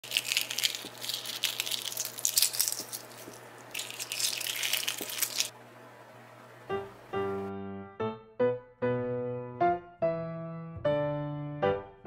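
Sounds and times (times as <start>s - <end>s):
eggshell crackling as peeled: 0.0s - 5.5s.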